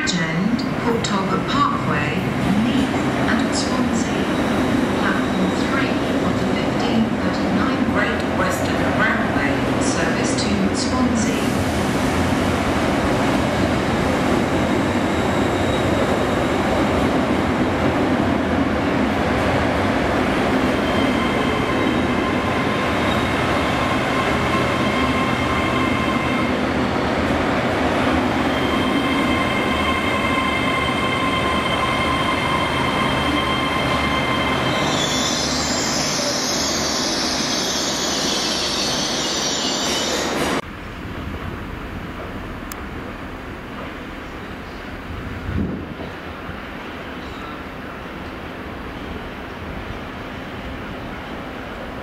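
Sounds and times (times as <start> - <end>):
high wheel and brake squeal: 28.5 - 40.4.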